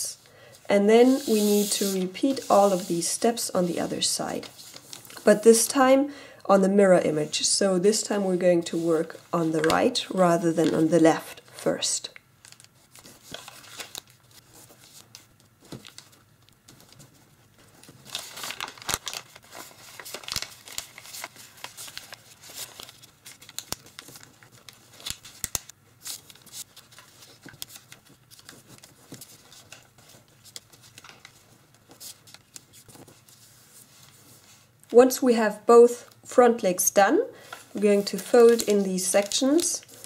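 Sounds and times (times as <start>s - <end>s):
paper rustling and crinkling: 1.0s - 5.5s, 12.4s - 34.8s, 37.4s - 40.0s
paper clicks and crackles: 12.4s - 33.4s, 38.0s - 40.0s.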